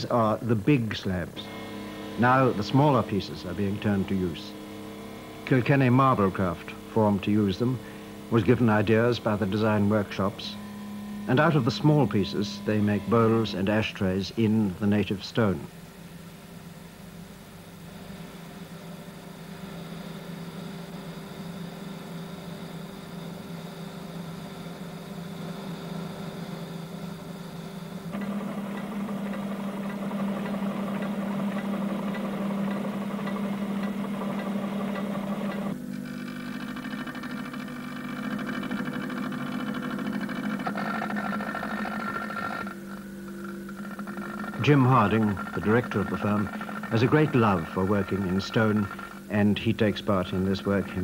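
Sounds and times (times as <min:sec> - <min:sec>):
stone grinding machines: 0:01.3 - 0:14.3, 0:28.0 - 0:51.0
spinning wheel on stone: 0:36.4 - 0:49.2.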